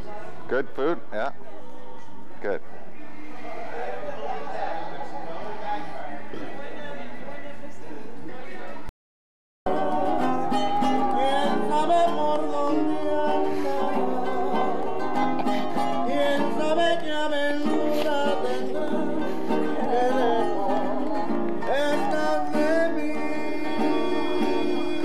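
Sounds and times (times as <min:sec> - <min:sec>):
acoustic guitar strumming: 0:09.7 - 0:25.0
man singing: 0:09.7 - 0:25.0
hand claps: 0:19.8 - 0:22.3.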